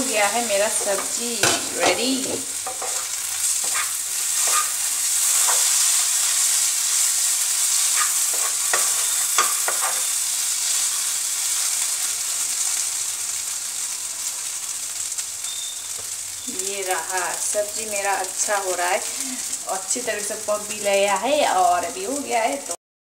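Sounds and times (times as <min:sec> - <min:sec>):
vegetables sizzling in a frying pan: 0:00.0 - 0:22.8
wooden spatula scraping a pan: 0:00.2 - 0:10.2.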